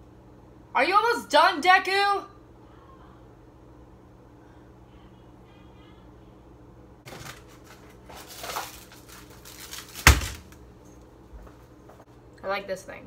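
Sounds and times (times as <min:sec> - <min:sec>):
steady low hum: 0:00.0 - 0:13.0
items rustling and clattering: 0:07.0 - 0:12.1.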